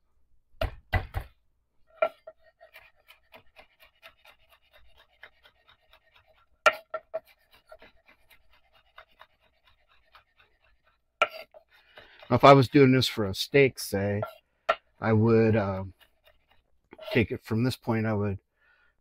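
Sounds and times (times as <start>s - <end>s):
knife chops: 0.6s - 1.4s, 2.0s - 12.8s, 14.2s - 17.2s.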